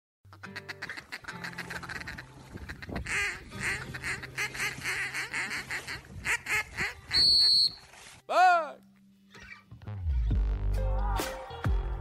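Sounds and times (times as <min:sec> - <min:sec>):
duck quacking: 0:00.3 - 0:07.7.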